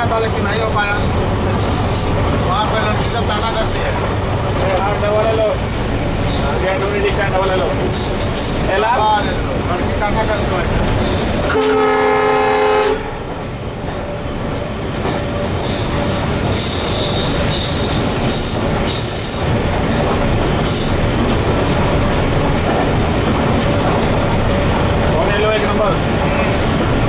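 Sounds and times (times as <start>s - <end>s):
diesel locomotive running: 0.0s - 27.0s
locomotive air horn blast: 11.5s - 13.1s.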